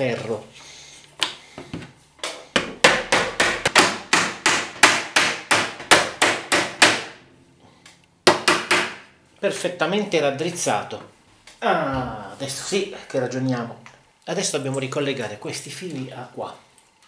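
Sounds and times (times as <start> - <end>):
hammer beating on steel frame: 2.6 - 7.1, 8.3 - 9.1.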